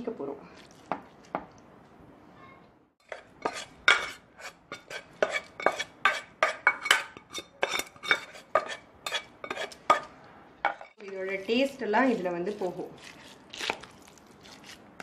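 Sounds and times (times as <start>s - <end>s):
spatula scraping and tapping pan: 3.0s - 11.2s.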